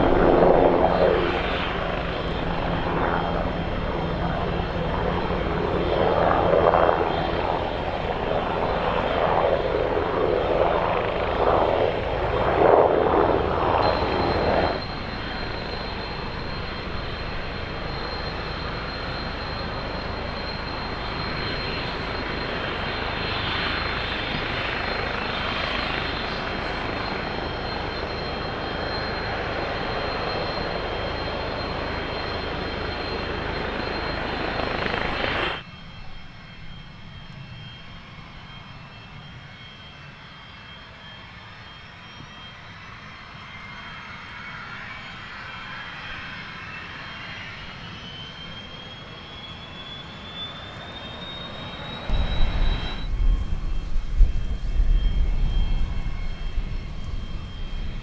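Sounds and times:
jet engines running: 0.0 - 58.0.

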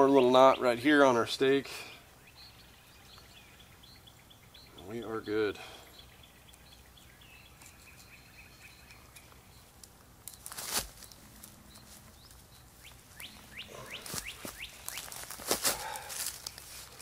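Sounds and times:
birds chirping: 0.0 - 17.0
scuffing rustle: 10.3 - 17.0.

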